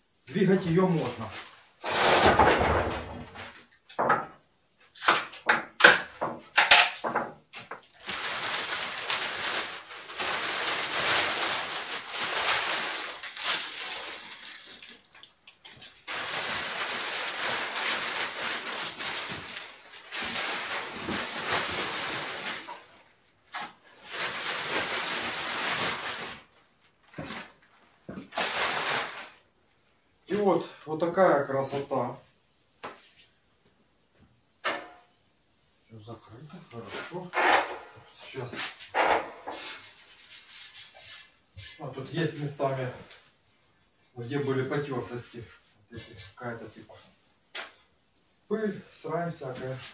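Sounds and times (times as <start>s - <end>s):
plastic wrapping crinkling: 7.7s - 29.5s.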